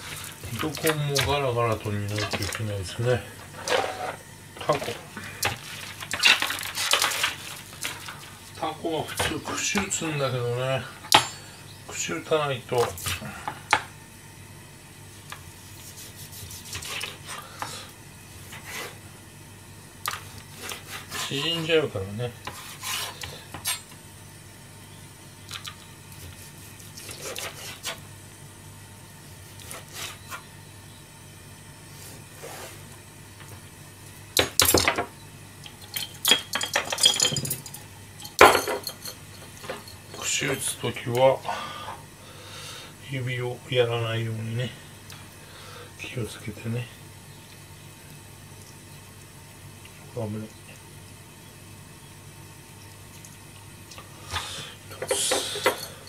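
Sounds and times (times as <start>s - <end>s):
knife cutting on cutting board: 15.7s - 17.2s, 22.5s - 23.3s, 26.2s - 28.0s
knife clattering on metal counter: 35.8s - 40.7s, 54.9s - 56.0s.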